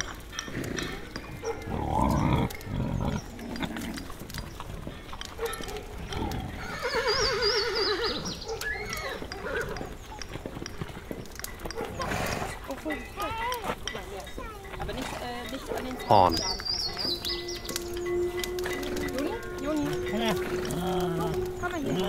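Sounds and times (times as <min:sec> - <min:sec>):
open fire crackling: 0:00.0 - 0:22.0
deep animal call: 0:01.7 - 0:04.4, 0:16.3 - 0:22.0
horse whinnying: 0:06.2 - 0:09.9, 0:12.0 - 0:12.6, 0:17.1 - 0:22.0.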